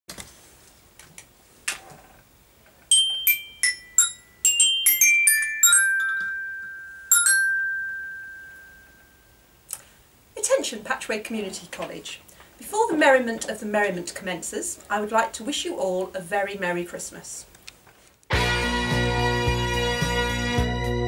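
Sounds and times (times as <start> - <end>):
glockenspiel notes: 2.9 - 9.4.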